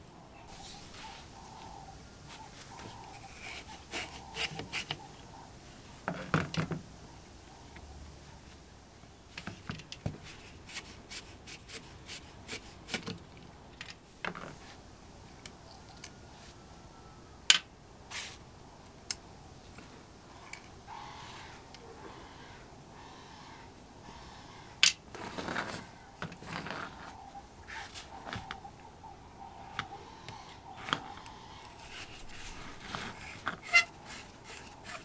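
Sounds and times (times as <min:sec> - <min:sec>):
metal hand tools clicking and scraping: 0:31.8 - 0:35.0.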